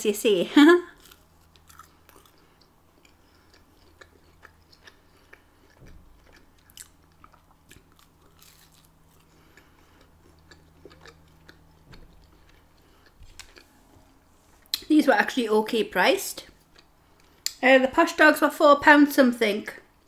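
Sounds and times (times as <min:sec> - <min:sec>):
low steady hum: 0:00.0 - 0:20.0
chewing and soft crunches: 0:01.0 - 0:14.9, 0:16.4 - 0:17.6.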